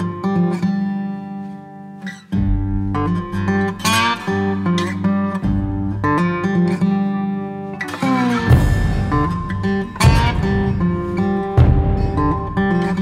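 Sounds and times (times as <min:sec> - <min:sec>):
strummed acoustic guitar music: 0:00.0 - 0:13.0
low bass line: 0:08.5 - 0:13.0.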